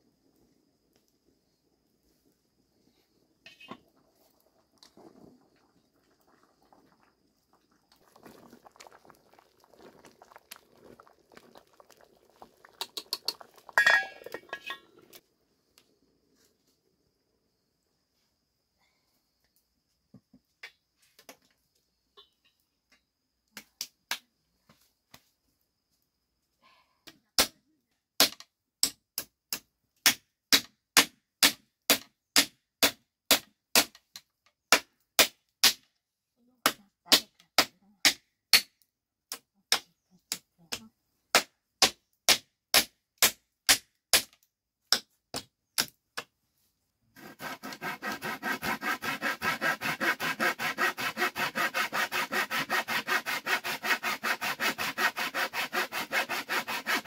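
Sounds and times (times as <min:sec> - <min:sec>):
handsaw cutting wood: 0:47.2 - 0:57.0.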